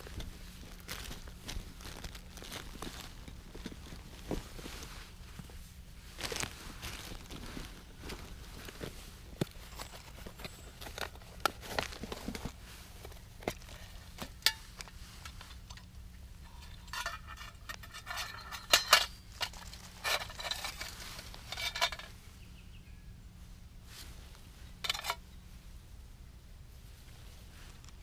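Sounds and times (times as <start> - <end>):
camping gear clicking and clinking: 0.0 - 22.2, 24.8 - 25.3.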